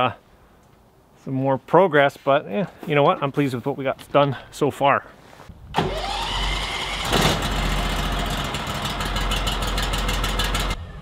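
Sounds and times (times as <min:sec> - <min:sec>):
sawmill gas engine revving: 0:05.8 - 0:11.0.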